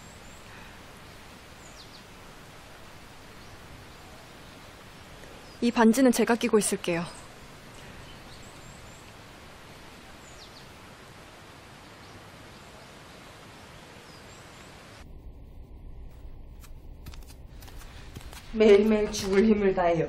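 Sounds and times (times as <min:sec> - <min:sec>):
outdoor hiss: 0:00.0 - 0:15.2
low room hum: 0:15.0 - 0:20.0.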